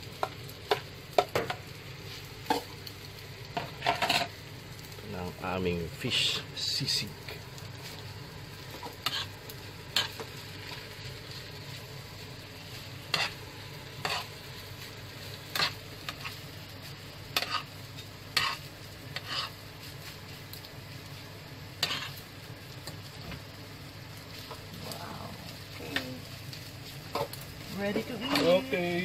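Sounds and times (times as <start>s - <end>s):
fish sizzling in a pan: 0.0s - 29.0s
fork scraping and clinking on pan: 13.1s - 13.4s, 14.0s - 14.3s, 17.4s - 17.7s.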